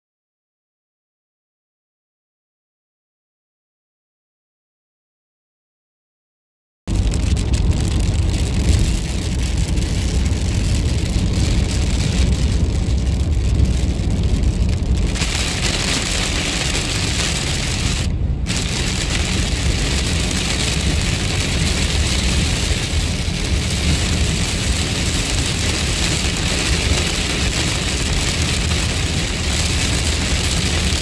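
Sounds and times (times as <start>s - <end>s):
car driving rumble: 6.9s - 31.0s
heavy rain on car roof: 6.9s - 31.0s.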